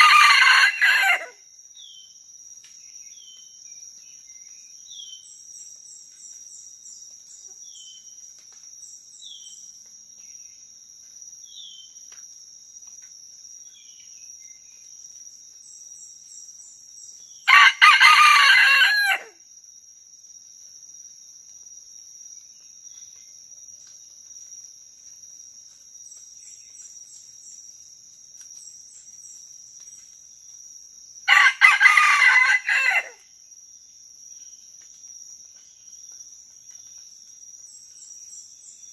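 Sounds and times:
rooster crowing: 0.0 - 1.4, 17.5 - 19.4, 31.3 - 33.2
insects droning: 0.0 - 38.9.

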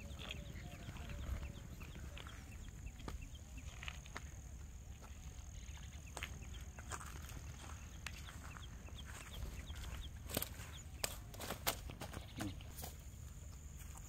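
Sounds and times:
wind rumble on microphone: 0.0 - 4.8
faint chirps: 0.0 - 11.3.

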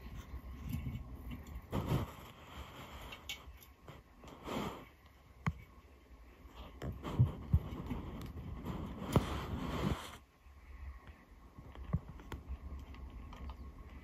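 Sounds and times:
tortoise crunching cuttlebone: 11.6 - 14.0.

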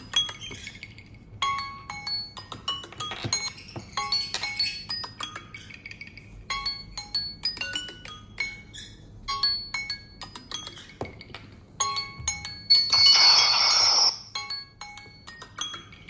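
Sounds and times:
phone alarm melody: 12.2 - 14.6.

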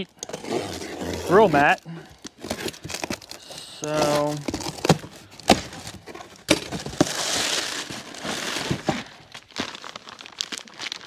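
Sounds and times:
cardboard box tearing: 0.2 - 11.0
packing paper rustling: 0.3 - 11.0.

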